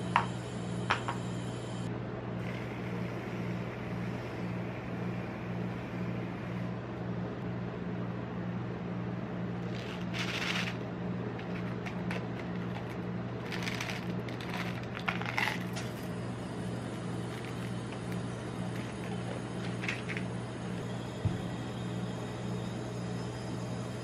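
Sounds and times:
low hum: 0.0 - 24.0
sweets rattling in plastic jar: 9.7 - 10.8, 11.4 - 16.0.

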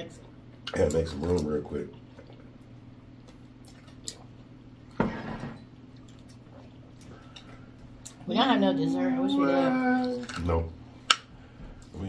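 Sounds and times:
steady low hum: 0.0 - 12.0
wet eating mouth sounds: 1.9 - 4.5.

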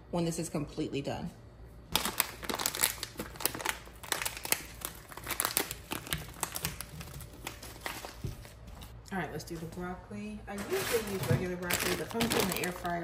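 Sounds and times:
plastic pouch crinkling: 1.9 - 9.0, 10.6 - 13.0.

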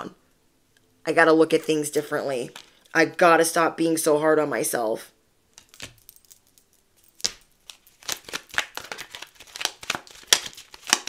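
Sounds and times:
cards being shuffled: 5.6 - 6.4, 7.0 - 11.0.

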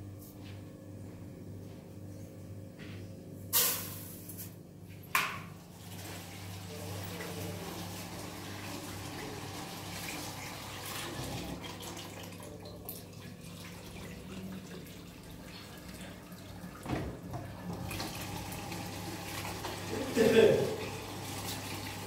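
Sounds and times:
running water: 5.8 - 22.0.

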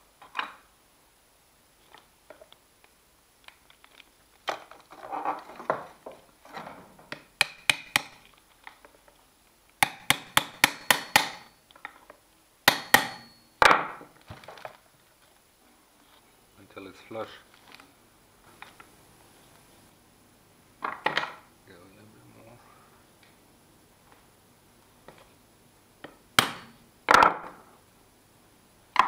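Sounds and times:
small hammer tapping metal pin: 7.1 - 8.2.

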